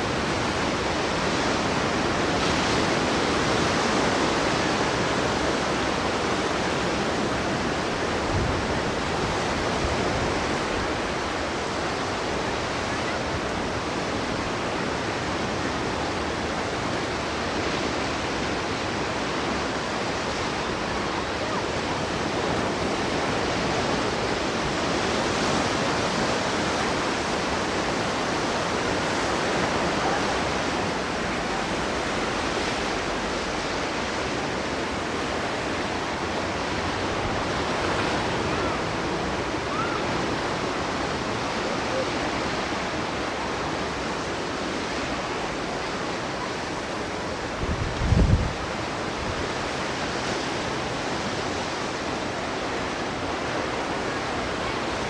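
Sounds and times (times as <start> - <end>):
ocean waves breaking on beach: 0.0 - 55.0.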